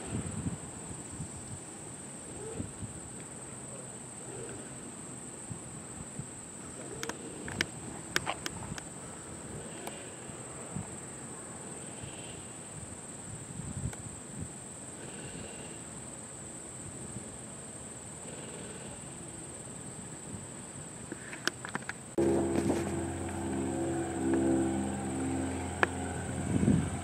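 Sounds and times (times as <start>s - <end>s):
low outdoor rumble: 22.2s - 27.0s.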